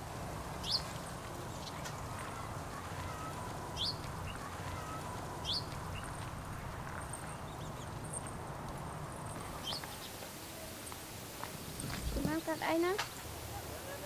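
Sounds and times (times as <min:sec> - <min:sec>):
bird rising chirp: 0:03.0 - 0:06.1.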